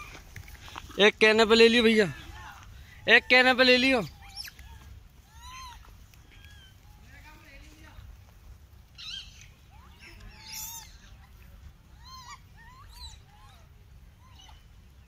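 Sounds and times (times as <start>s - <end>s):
low steady rumble: 0.0s - 15.0s
monkeys squealing and chirping: 2.9s - 7.0s, 8.9s - 14.8s.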